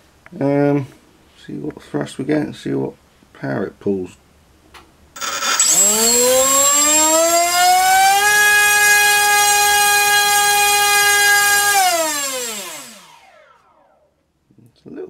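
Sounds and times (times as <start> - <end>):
electric motor propeller whine: 5.2 - 14.1.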